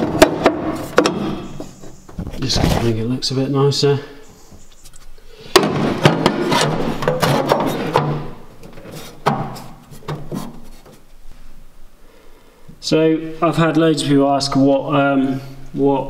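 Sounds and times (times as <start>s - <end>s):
scraping and handling: 4.4s - 11.2s.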